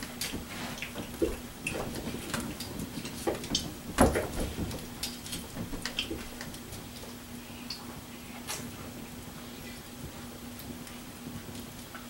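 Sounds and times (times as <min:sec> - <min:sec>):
wood fire crackling: 0:00.0 - 0:12.0.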